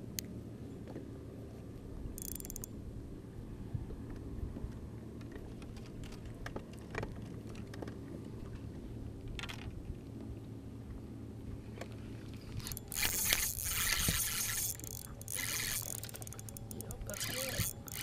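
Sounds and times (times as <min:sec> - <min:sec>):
fishing gear clicks: 0:02.2 - 0:02.7, 0:12.5 - 0:18.0
steady low hum: 0:08.3 - 0:18.0.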